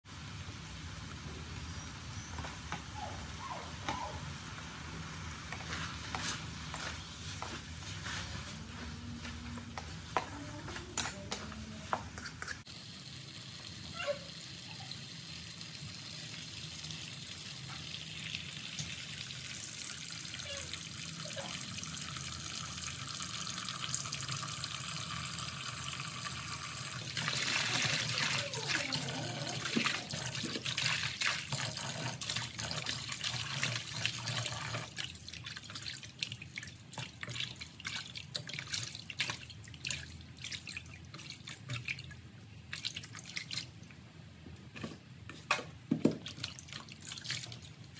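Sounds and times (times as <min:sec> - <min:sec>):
tap water running into bowl: 0:15.5 - 0:42.2.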